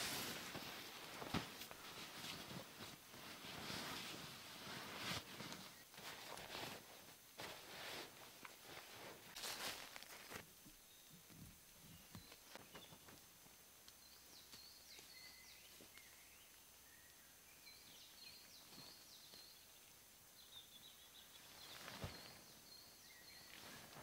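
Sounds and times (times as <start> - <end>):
small birds chirping: 10.7 - 24.0.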